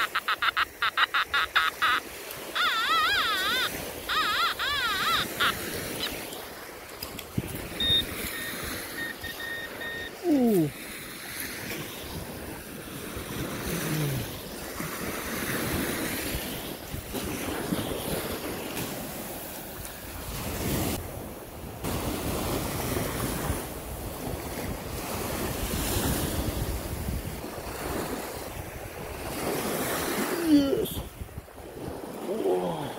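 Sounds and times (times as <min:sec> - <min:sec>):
sea surf washing: 0:00.0 - 0:32.9
wind on microphone: 0:02.4 - 0:11.0, 0:20.1 - 0:32.3.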